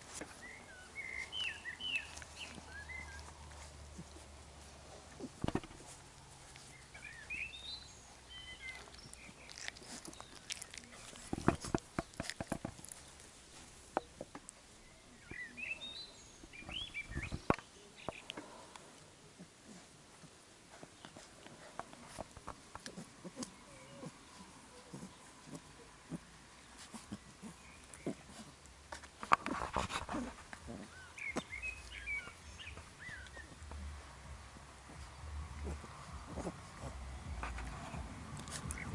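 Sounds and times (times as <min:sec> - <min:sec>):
puppies scuffling at microphone: 0:00.0 - 0:14.5, 0:16.4 - 0:18.2, 0:19.8 - 0:38.9
sharp knocks and rustles: 0:05.0 - 0:06.6, 0:09.6 - 0:14.5, 0:28.9 - 0:30.8, 0:32.7 - 0:38.9.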